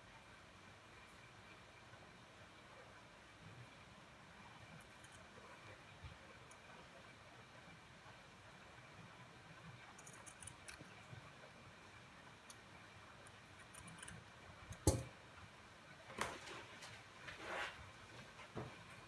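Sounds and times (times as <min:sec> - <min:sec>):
rustles and knocks of handling: 0:16.0 - 0:19.0.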